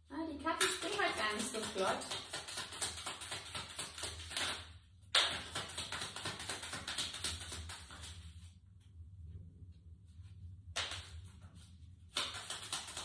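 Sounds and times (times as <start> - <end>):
cards being shuffled: 0.8 - 4.6, 5.2 - 8.4, 10.8 - 13.0.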